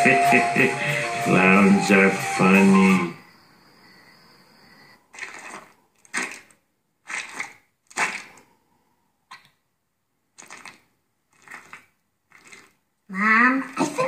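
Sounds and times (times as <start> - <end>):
cartoon wet squelches: 5.1 - 8.6, 9.3 - 9.6, 10.3 - 14.0.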